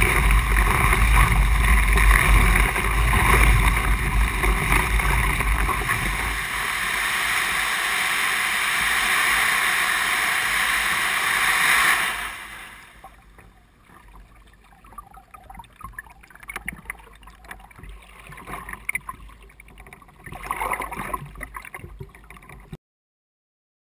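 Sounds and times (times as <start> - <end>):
wind on microphone: 0.0 - 13.1
paddle splashes and drips: 0.0 - 22.8
water rushing: 0.0 - 22.8.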